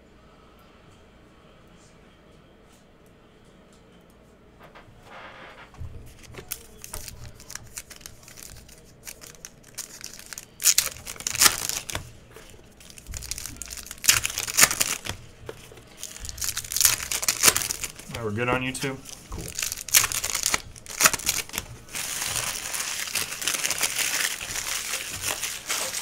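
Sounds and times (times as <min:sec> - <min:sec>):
foil wrappers crinkling and tearing: 0:06.1 - 0:26.0.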